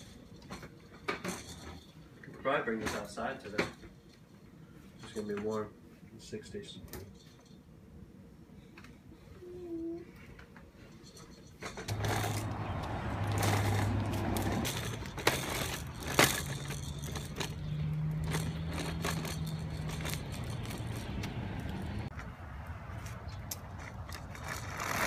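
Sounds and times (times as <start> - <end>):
plastic wheels rolling on concrete: 0.0 - 3.9, 10.4 - 25.0.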